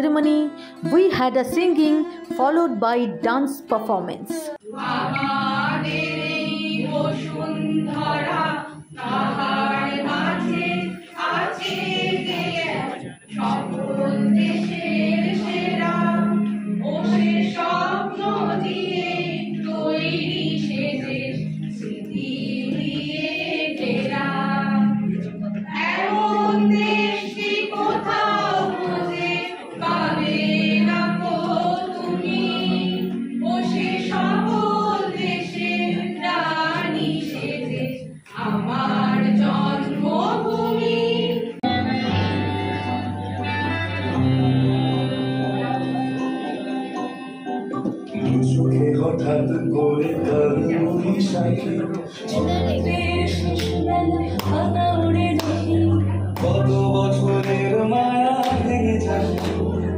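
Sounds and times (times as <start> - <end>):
group of people singing: 4.4 - 59.9.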